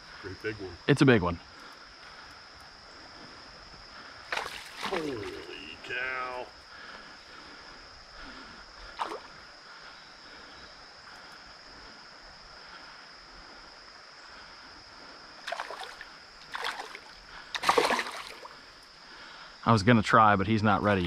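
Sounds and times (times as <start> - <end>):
creek water flowing: 1.3 - 19.6
fish splashing in water: 4.3 - 5.5, 15.5 - 18.6.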